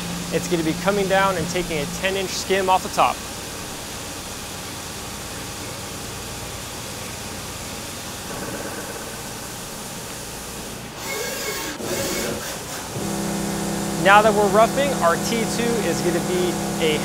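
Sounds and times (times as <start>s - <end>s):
milling machine cutting metal: 0.0s - 3.0s, 11.0s - 17.0s
coolant spray hiss: 0.0s - 17.0s.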